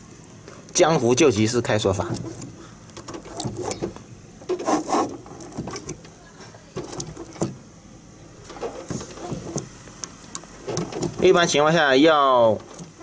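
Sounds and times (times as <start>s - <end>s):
key clicking and scraping in padlock: 2.1s - 6.0s.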